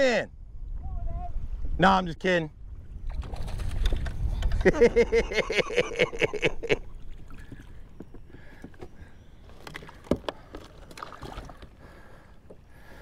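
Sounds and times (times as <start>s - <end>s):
kayak rocking on water: 3.2s - 13.0s
knocks and clicks against hull: 7.2s - 11.7s.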